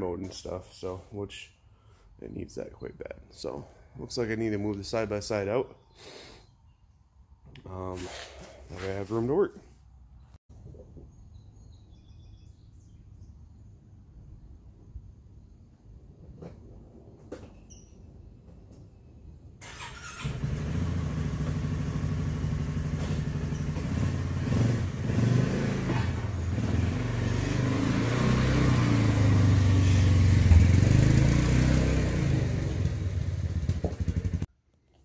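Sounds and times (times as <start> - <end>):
utility vehicle engine starting and running: 19.6 - 34.5.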